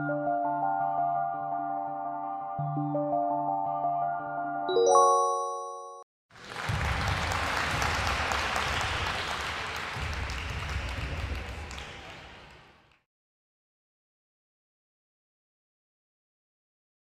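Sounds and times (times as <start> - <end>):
chime ringing: 4.7 - 6.0
crowd applause: 6.3 - 13.0.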